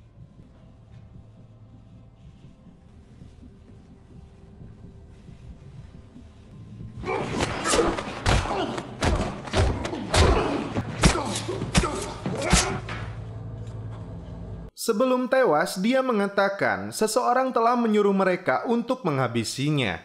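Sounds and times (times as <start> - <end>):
heavy punches and body slams: 7.0 - 12.9
person grunting: 9.6 - 12.8.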